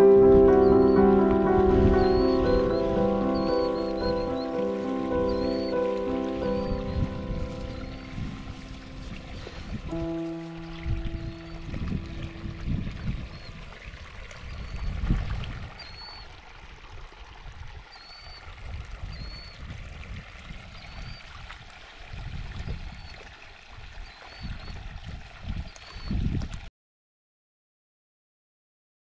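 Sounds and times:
wind rumbling on microphone: 0.0 - 26.7
small bird chirping: 2.0 - 9.0
water trickling over rocks: 2.8 - 26.7.

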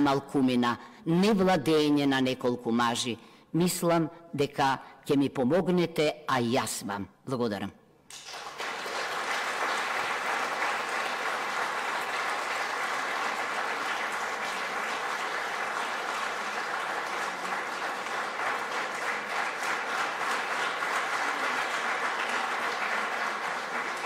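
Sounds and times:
large audience applauding: 8.1 - 24.0.

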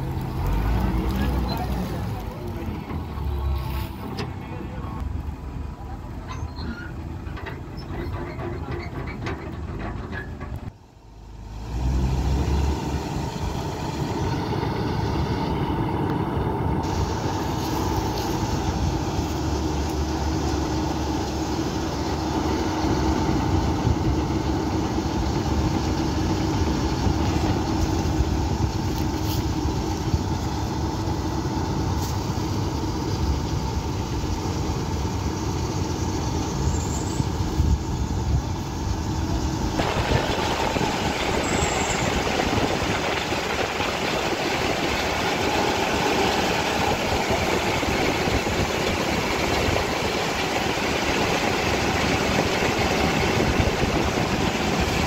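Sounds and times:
combine harvester running: 0.0 - 55.0
auger pouring soybeans: 39.8 - 55.0.

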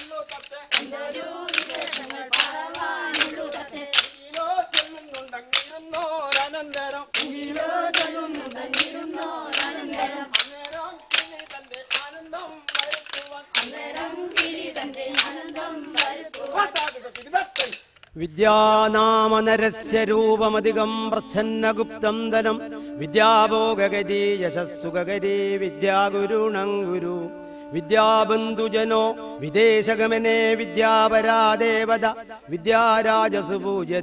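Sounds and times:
group singing folk song: 0.0 - 17.2, 18.4 - 34.0
wooden sticks clacking: 0.0 - 18.2.

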